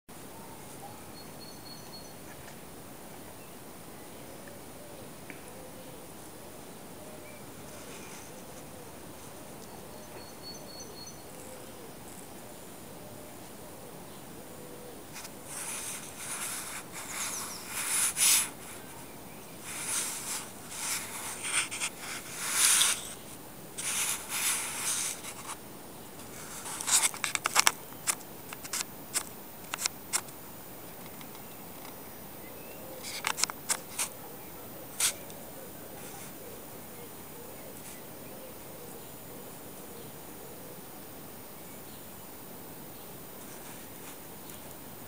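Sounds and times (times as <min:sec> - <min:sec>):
camera handling rubbing: 0:19.6 - 0:23.2, 0:23.8 - 0:25.6, 0:26.4 - 0:28.9.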